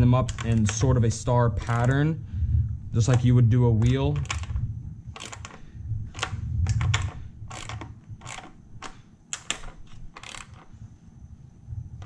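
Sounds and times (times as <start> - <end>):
socket ratchet clicking: 0.2 - 1.0, 1.6 - 2.0, 3.0 - 10.8.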